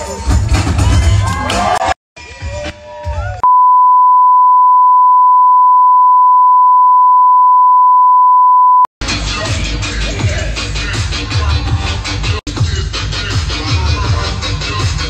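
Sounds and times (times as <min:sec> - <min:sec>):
music: 0:00.0 - 0:03.4, 0:09.0 - 0:15.0
censor bleep tone: 0:03.4 - 0:08.9.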